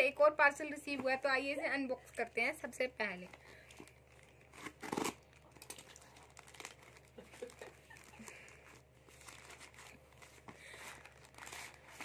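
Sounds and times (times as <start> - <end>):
plastic mailer crinkling: 3.4 - 12.0.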